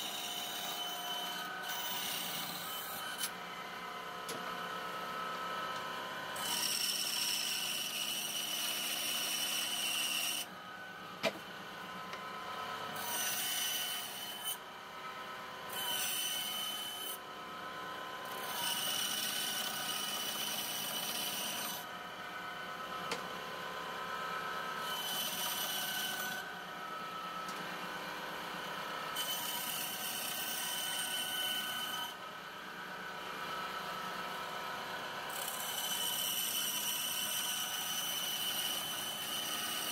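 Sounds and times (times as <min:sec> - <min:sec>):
band saw cutting wood: 0:00.0 - 0:03.5, 0:05.1 - 0:17.2, 0:17.8 - 0:21.9, 0:24.7 - 0:27.5, 0:29.1 - 0:32.2, 0:35.3 - 0:39.9.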